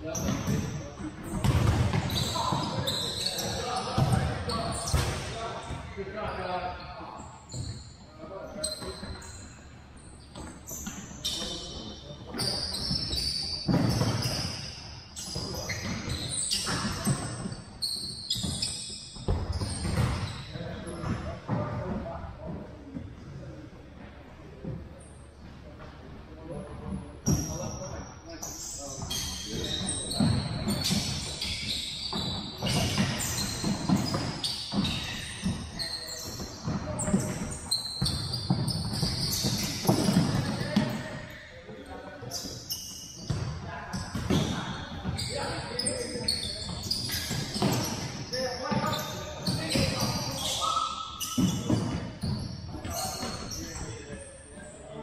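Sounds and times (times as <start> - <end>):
sneakers squeaking on wooden floor: 0.0 - 23.4, 24.6 - 55.0
echoing voices: 43.4 - 55.0.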